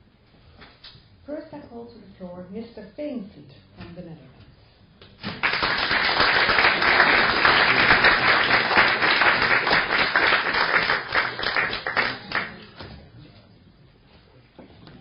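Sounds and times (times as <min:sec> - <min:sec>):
audience applauding: 0:05.2 - 0:12.8.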